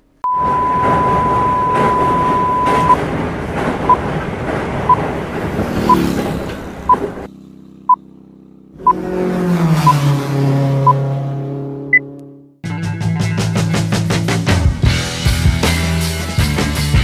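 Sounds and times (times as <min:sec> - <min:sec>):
short high beeps: 0:00.2 - 0:03.0
rushing noise: 0:00.3 - 0:07.3.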